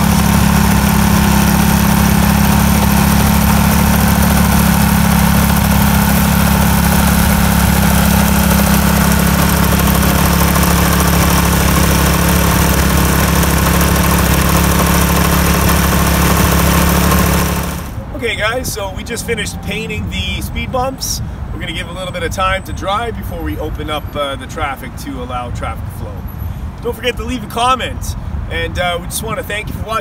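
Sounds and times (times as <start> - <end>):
small gasoline engine running: 0.0 - 18.0.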